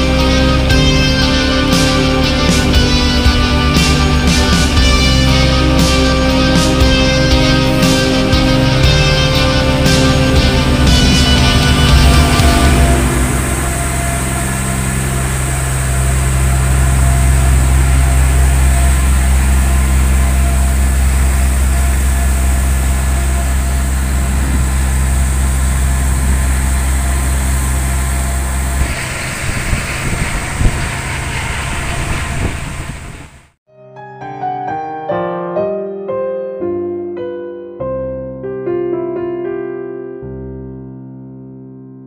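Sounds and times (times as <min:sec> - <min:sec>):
marine diesel engine hum: 0:00.0 - 0:33.6
propeller wash churning water: 0:00.0 - 0:33.6.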